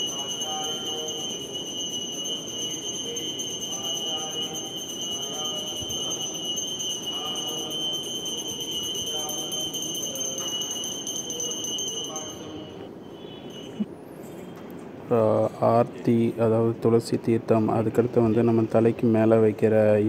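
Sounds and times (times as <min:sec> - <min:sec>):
hand bell ringing: 0:00.0 - 0:13.9.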